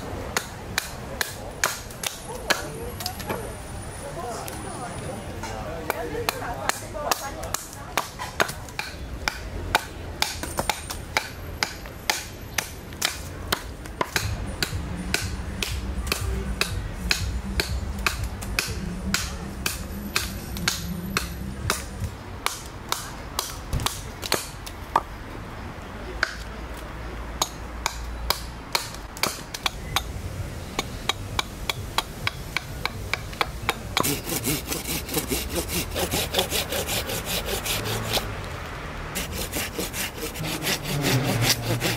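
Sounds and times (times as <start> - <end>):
axe chopping wood: 0.3 - 2.7, 5.9 - 25.1, 27.4 - 30.1
knife shaving wood: 34.0 - 38.3, 39.2 - 41.9.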